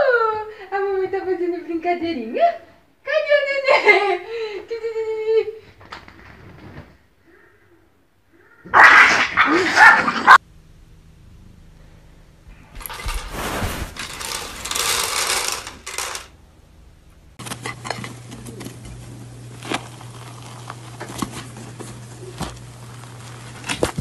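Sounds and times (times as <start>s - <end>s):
low steady hum: 10.4s - 24.0s
loud rushing noise: 12.8s - 15.9s
cake crust crackling and tearing: 19.5s - 21.8s.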